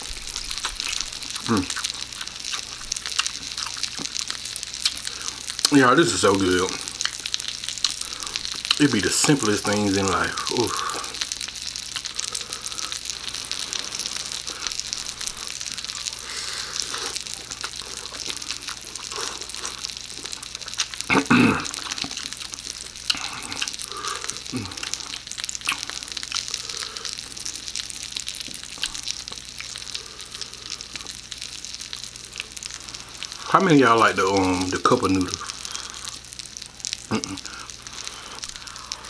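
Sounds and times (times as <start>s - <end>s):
wet chewing and slurping noodles: 0.0s - 5.7s, 10.6s - 27.7s.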